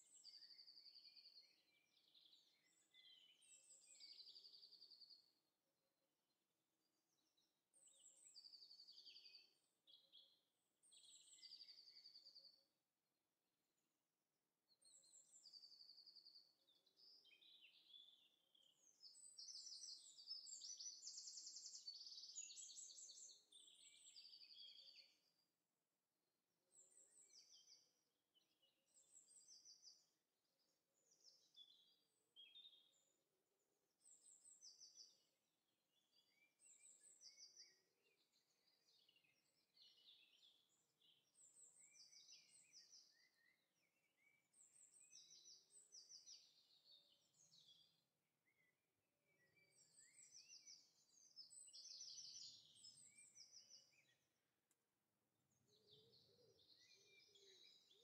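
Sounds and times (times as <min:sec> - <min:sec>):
birds chirping and trilling: 0:55.9 - 0:58.0.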